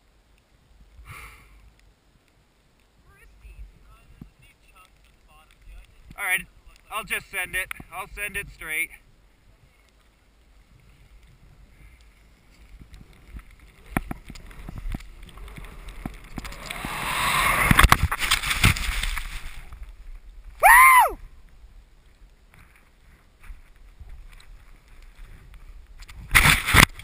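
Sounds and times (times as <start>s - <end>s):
air and snow rushing: 10.5s - 21.4s, 23.0s - 27.0s
short loud cry: 20.6s - 21.2s.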